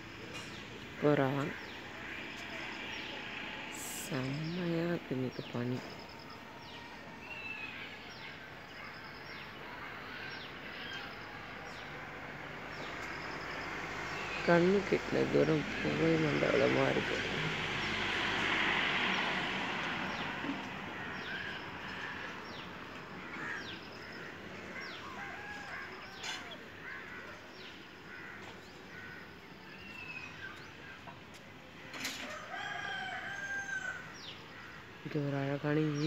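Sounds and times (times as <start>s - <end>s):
small birds chirping: 12.7s - 31.5s
rooster crowing: 24.8s - 27.3s, 32.1s - 34.4s.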